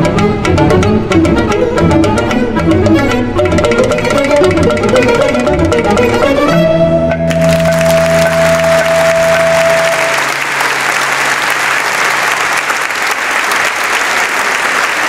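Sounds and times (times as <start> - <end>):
recorded string music chord: 1.3 - 10.7
audience applause: 7.3 - 15.0.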